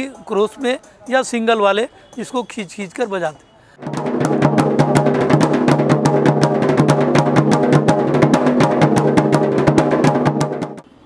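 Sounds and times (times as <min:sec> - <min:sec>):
drums beaten with sticks: 0:03.8 - 0:10.8
low drum ring: 0:03.8 - 0:10.8.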